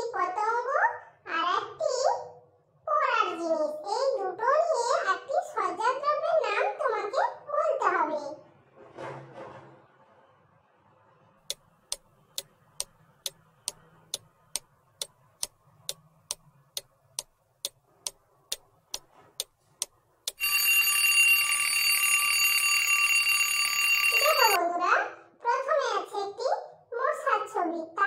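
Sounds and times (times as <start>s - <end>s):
clock ticking: 11.5s - 20.7s
alarm clock bell ringing: 20.3s - 24.6s.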